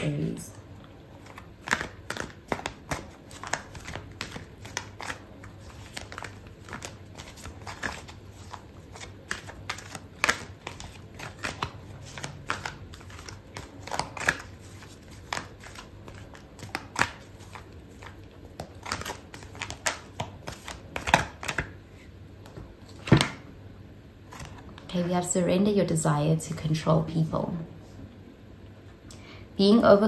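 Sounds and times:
faint low hum: 0.0s - 30.0s
cards being shuffled: 1.2s - 21.8s.

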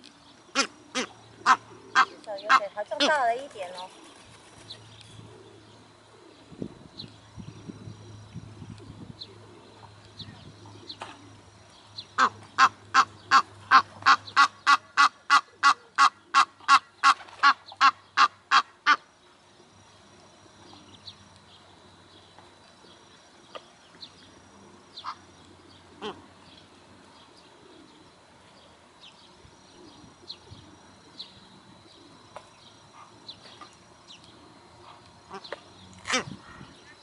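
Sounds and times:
goose honking: 0.5s - 3.2s, 12.2s - 19.0s.

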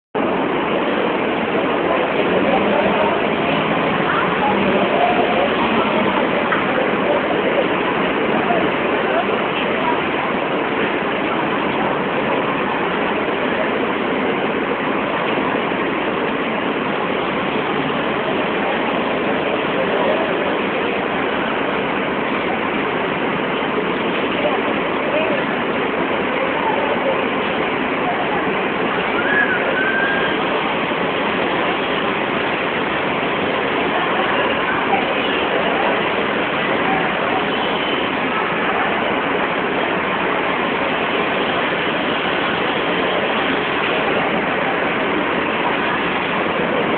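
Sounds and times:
large crowd din: 0.1s - 46.9s
loud background hubbub: 0.1s - 46.9s
short high tone: 29.0s - 30.5s.

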